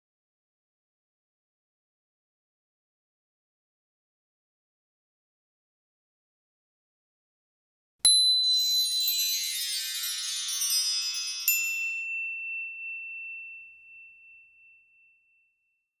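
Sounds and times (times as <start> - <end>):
shimmering high chimes: 8.1 - 15.6
bright ringing ping: 11.4 - 15.8.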